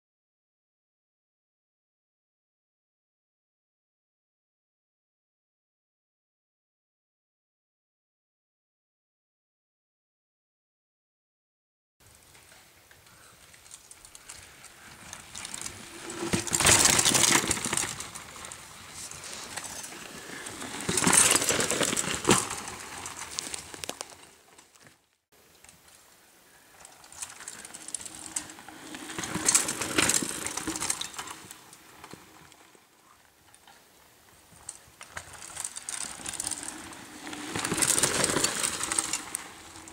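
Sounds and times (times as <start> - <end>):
mountain bikes rushing past: 12.0 - 24.8, 26.5 - 39.9
tyres rolling on dirt: 12.0 - 25.0, 26.6 - 39.9
bike rattling: 12.1 - 25.0, 25.6 - 39.9.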